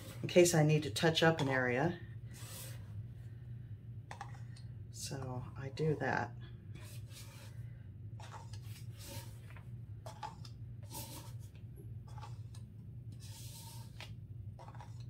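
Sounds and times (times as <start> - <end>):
steady low hum: 0.0 - 15.0
scraper dragged across plastic: 2.3 - 2.9, 6.8 - 7.6, 8.2 - 11.5, 12.1 - 15.0.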